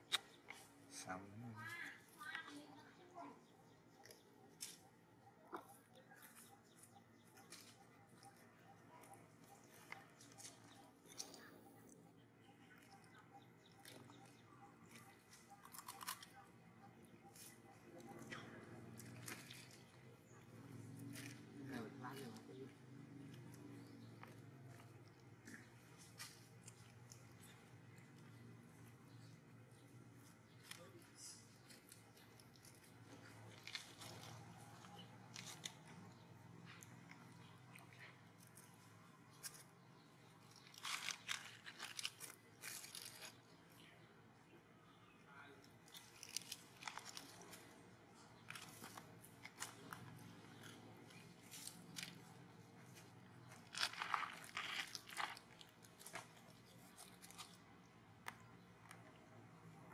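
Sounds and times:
soft clicks and crackles: 0:22.7 - 0:44.0, 0:45.6 - 0:59.9
dry leaves crunching: 0:30.6 - 0:37.0, 0:40.5 - 0:43.4, 0:45.9 - 0:57.6.

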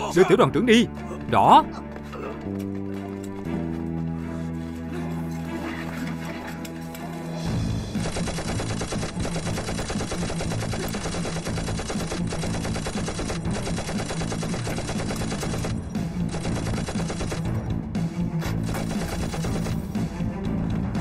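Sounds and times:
machine gun bursts: 0:08.0 - 0:17.5, 0:18.6 - 0:19.8.

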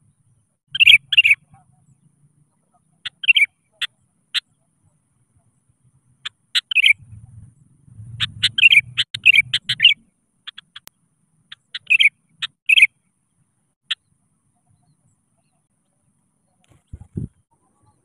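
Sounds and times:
bulbul singing: 0:00.1 - 0:04.7, 0:06.2 - 0:07.2, 0:08.1 - 0:15.7.

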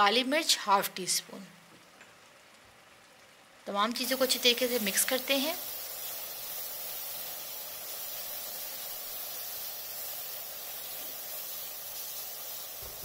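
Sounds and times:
vegetables sizzling in a wok: 0:03.7 - 0:13.0.

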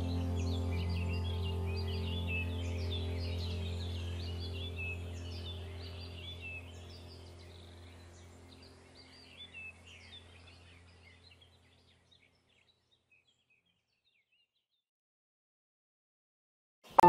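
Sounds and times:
steady low hum: 0:00.0 - 0:11.7
birds chirping: 0:00.0 - 0:14.6.

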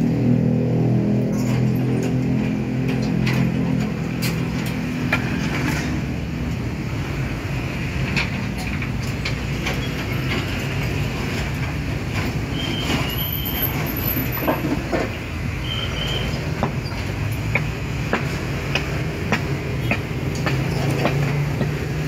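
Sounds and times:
sharp knocks and clunks: 0:16.4 - 0:22.0.

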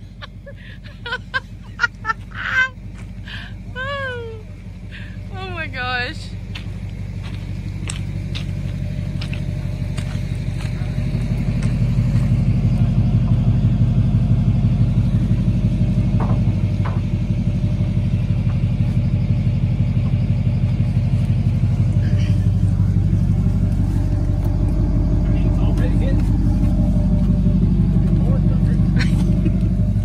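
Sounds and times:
truck engine rumbling: 0:00.0 - 0:30.0.

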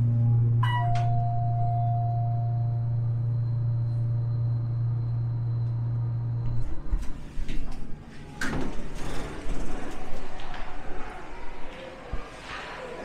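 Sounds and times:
low mechanical hum: 0:00.0 - 0:12.5
ringing chime tone: 0:00.6 - 0:06.2.

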